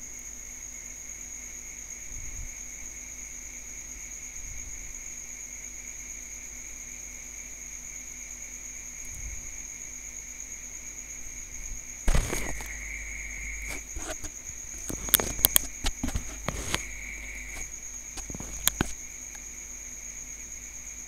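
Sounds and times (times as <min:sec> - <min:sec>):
high-pitched whine and hiss: 0:00.0 - 0:21.0
computer mouse clicks: 0:12.1 - 0:19.0.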